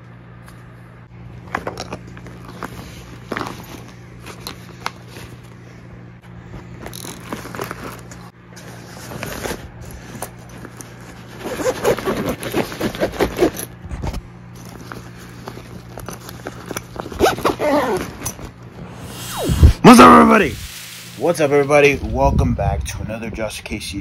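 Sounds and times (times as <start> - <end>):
fabric rustling and scraping: 6.5 - 19.0.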